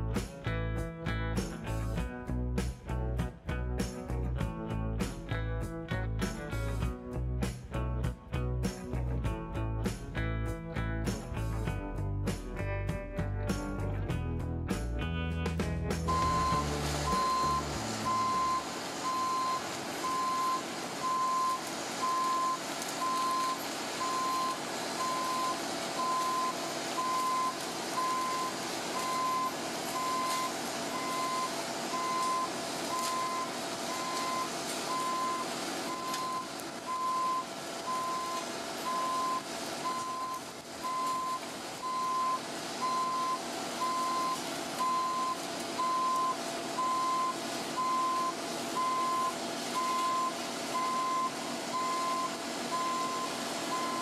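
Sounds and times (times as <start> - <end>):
diesel engine and hydraulics running: 15.6 - 54.0
excavator travel alarm beeping: 16.1 - 54.0.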